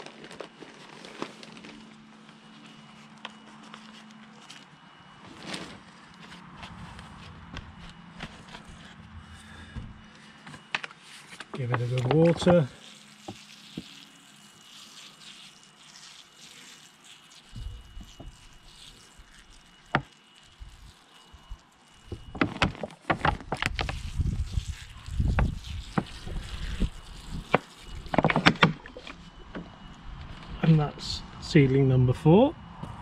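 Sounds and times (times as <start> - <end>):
water sprinkling onto compost: 11.6 - 22.8, 23.5 - 28.5.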